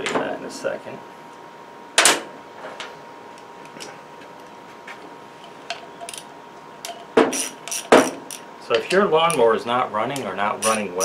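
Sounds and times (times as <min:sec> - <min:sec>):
nut driver ticks and clicks: 0:10.1 - 0:10.9.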